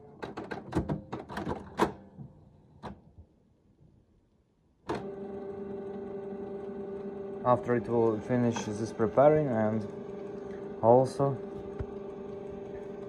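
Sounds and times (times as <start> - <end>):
inkjet printer clicks and clacks: 4.9 - 13.0
printer motor whine: 4.9 - 13.0.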